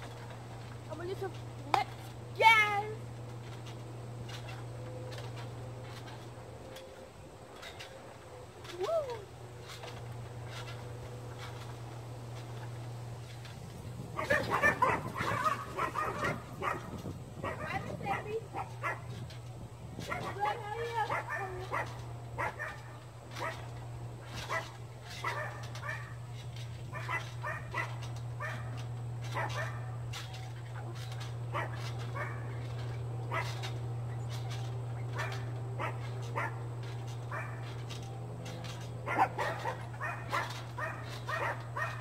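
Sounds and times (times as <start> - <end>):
steady low hum: 0.0 - 42.0
dog barking and yipping: 14.2 - 19.2, 20.1 - 23.7, 24.4 - 26.2, 26.9 - 30.0, 31.5 - 32.6, 33.3 - 33.7, 35.1 - 36.7, 37.3 - 37.7, 38.7 - 42.0.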